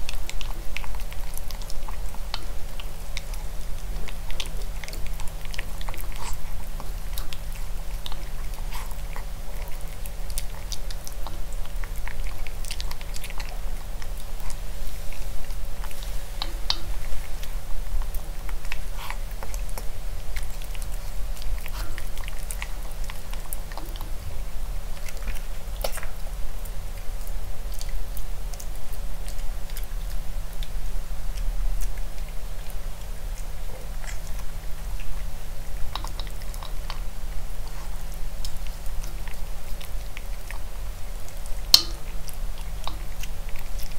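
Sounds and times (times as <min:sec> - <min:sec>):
puppy chewing food: 0:00.0 - 0:43.9
teeth clicking on plastic bowl: 0:41.7 - 0:43.9.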